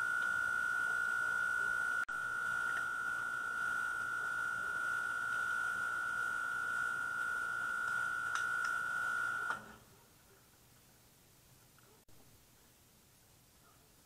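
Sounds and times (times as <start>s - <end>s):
faint clicks: 7.2s - 8.8s.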